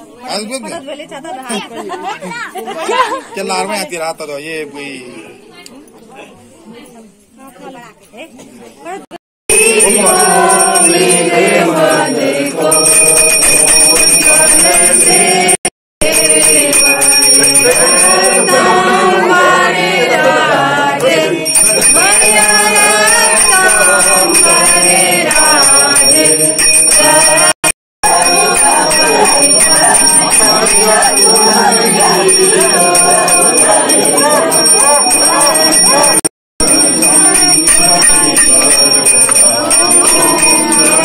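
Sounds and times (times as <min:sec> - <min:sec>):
bell ringing: 0:09.5 - 0:19.2, 0:21.4 - 0:41.0
devotional singing: 0:09.5 - 0:41.0.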